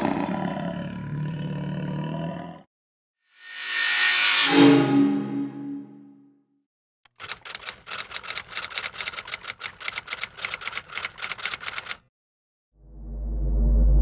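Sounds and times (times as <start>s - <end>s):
typewriter key clicks: 7.1s - 12.0s.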